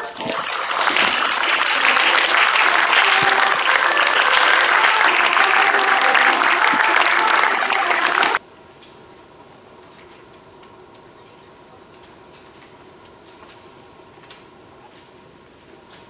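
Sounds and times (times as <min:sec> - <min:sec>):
audience clapping: 0:00.0 - 0:08.4.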